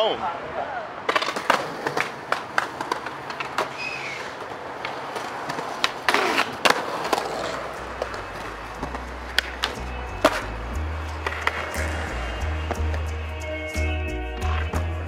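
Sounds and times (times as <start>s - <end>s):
skateboard wheels rolling on concrete: 0.0s - 15.0s
skateboard clacking on ledge: 1.1s - 13.0s
low bass music: 8.1s - 15.0s.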